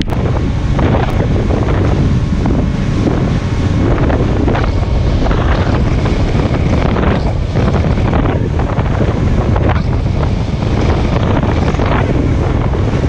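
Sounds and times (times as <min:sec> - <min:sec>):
outboard motor running: 0:00.0 - 0:13.0
water rushing past hull: 0:00.0 - 0:13.0
wind buffeting microphone: 0:00.0 - 0:13.0.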